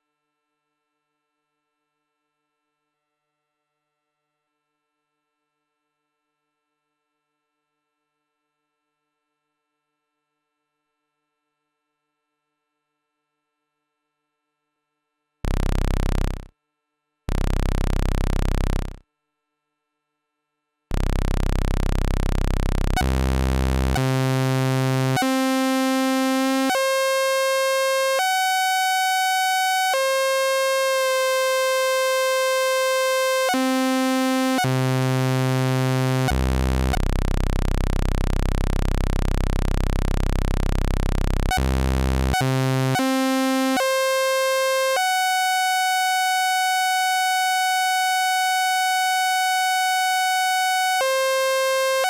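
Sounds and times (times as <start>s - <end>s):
buzzy synthesizer tone: 15.4s - 16.5s, 17.3s - 19.0s, 20.9s - 45.4s, 50.8s - 52.0s.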